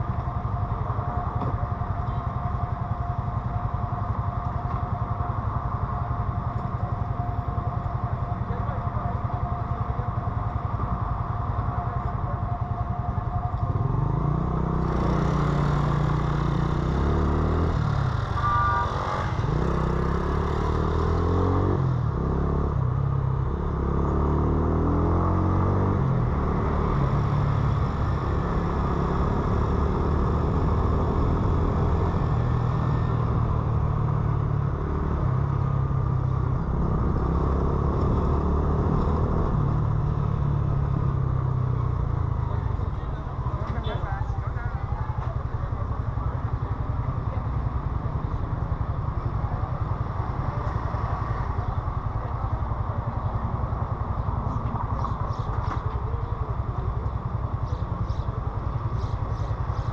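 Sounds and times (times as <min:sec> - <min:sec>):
motorcycle engine revving through gears: 0:13.5 - 0:43.8.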